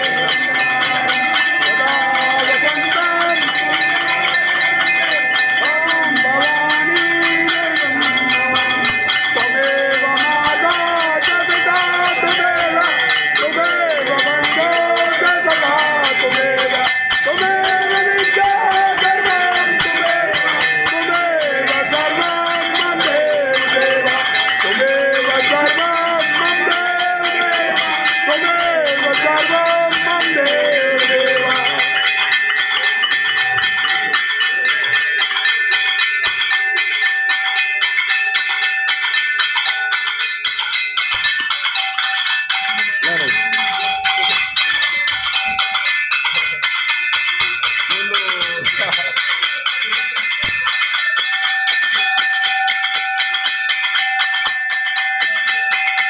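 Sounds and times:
devotional singing: 0.0s - 32.6s
temple bells ringing: 0.0s - 56.0s.

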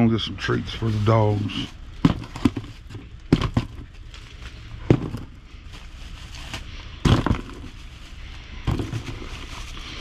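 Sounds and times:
cardboard box knocking: 2.0s - 3.8s, 4.9s - 5.3s.

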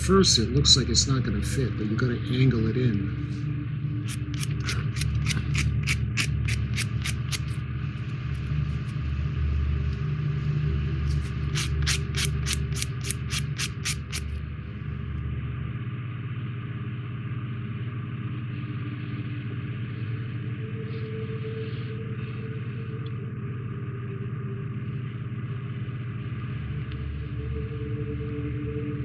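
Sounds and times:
steady low hum: 0.0s - 29.0s
sanding stick rubbing on plastic: 11.1s - 14.2s.

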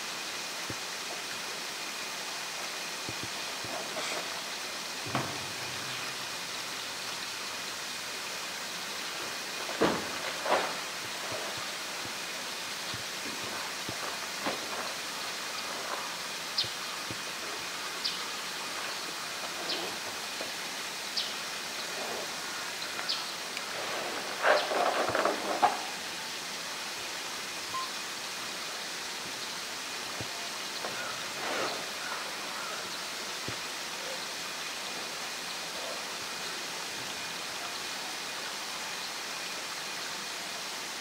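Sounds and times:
running water: 0.0s - 41.0s
faint high chirps: 27.7s - 28.0s.

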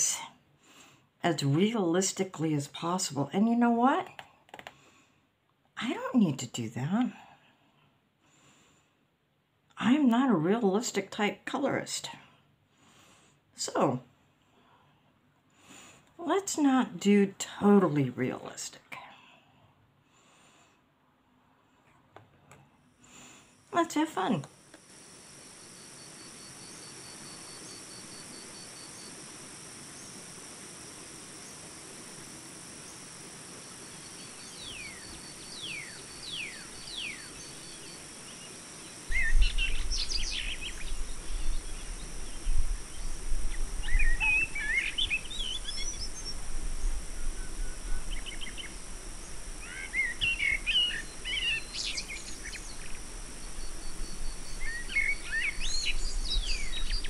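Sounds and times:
steady hiss: 22.7s - 57.0s
birds chirping: 25.0s - 57.0s.

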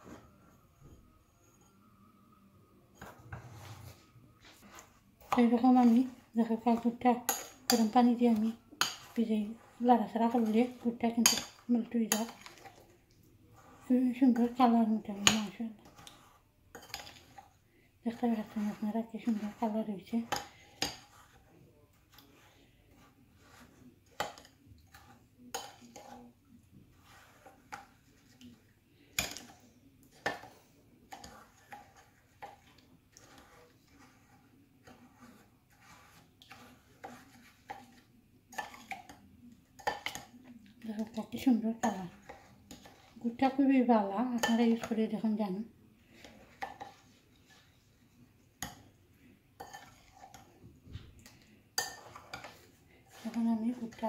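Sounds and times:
spoon stirring thick syrup: 0.0s - 54.0s
metal spoon clinking ceramic bowl: 10.4s - 12.7s, 16.7s - 17.4s, 51.8s - 54.0s
spoon clinking against ceramic bowl: 51.8s - 54.0s.

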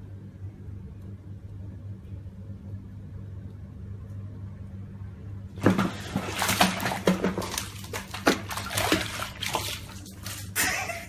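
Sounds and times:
steady low hum: 0.0s - 11.0s
water splashing in bathtub: 5.6s - 11.0s.

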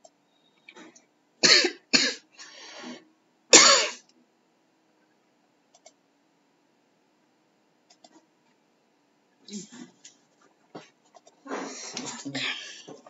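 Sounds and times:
person coughing: 1.4s - 2.2s, 3.6s - 4.0s, 11.5s - 13.0s.

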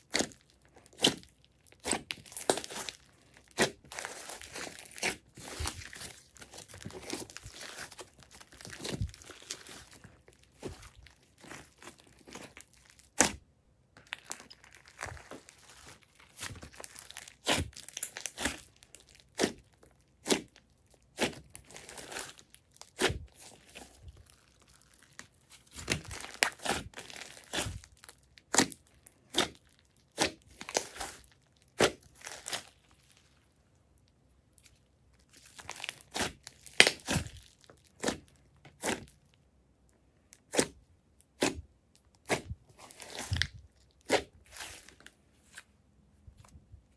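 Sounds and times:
slime popping and crackling: 0.0s - 13.4s, 14.0s - 33.2s, 35.2s - 39.2s
slime squishing: 0.0s - 33.6s, 34.5s - 39.4s, 40.3s - 46.9s.

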